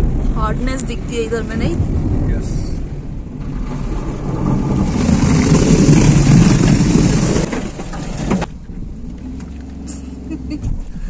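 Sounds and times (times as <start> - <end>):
water rushing over car: 0.0 - 8.5
car engine humming: 0.0 - 11.0.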